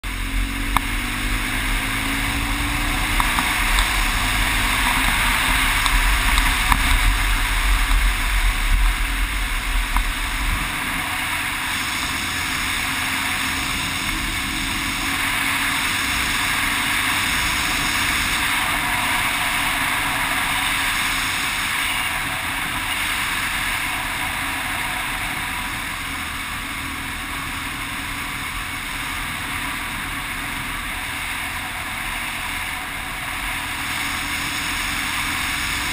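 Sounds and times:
motorcycle engine drone: 0.0 - 35.9
wind rush: 0.4 - 26.4.

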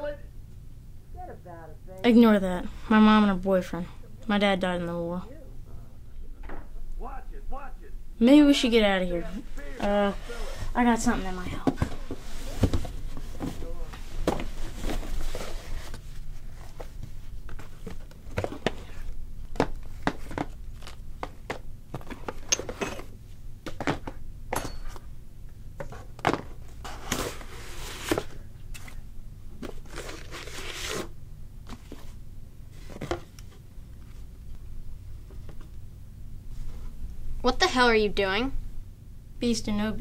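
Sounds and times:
cardboard rustling: 9.4 - 22.4.

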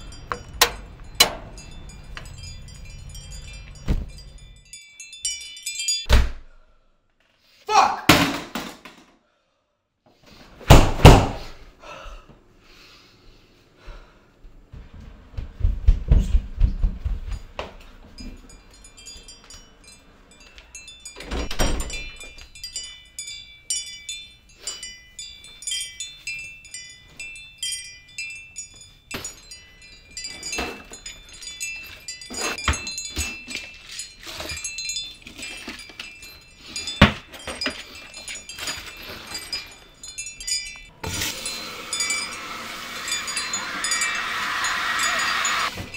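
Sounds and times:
bright tinkling chime: 0.0 - 6.1, 17.8 - 45.9
knocks and handling noises: 3.5 - 4.4, 30.2 - 39.9.

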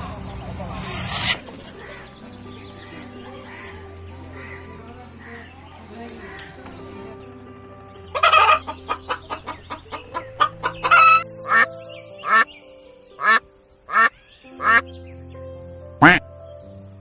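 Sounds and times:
light background music: 0.0 - 17.0
chickens clucking and cackling: 0.8 - 12.6, 13.2 - 14.9.

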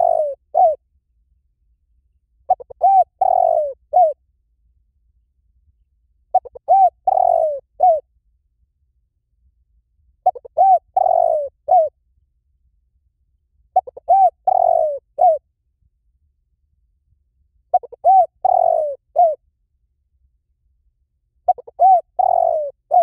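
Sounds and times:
dove cooing: 0.0 - 0.8, 2.5 - 4.2, 6.3 - 8.0, 10.2 - 11.9, 13.7 - 15.4, 17.7 - 19.4, 21.5 - 23.0.

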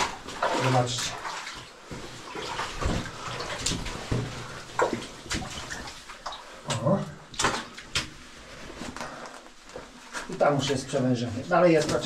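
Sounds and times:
footsteps splashing through water: 0.0 - 6.5.

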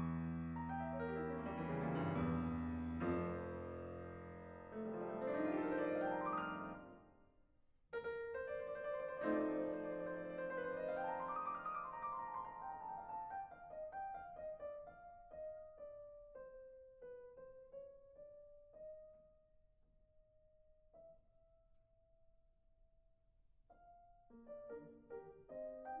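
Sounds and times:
soft solo piano music: 0.0 - 7.0, 8.0 - 19.3, 23.7 - 26.0.

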